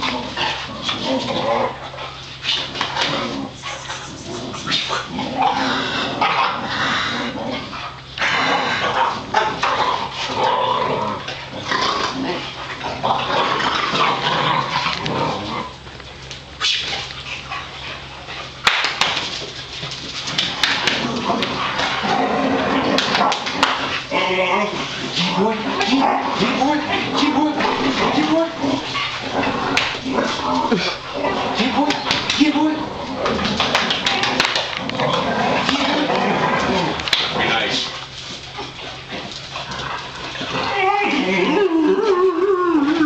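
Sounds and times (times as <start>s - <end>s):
dogs barking and yipping: 1.7s - 6.7s
hands slapping dogs: 18.6s - 22.0s, 22.9s - 24.0s, 29.7s - 31.0s, 31.6s - 35.0s, 35.6s - 37.9s.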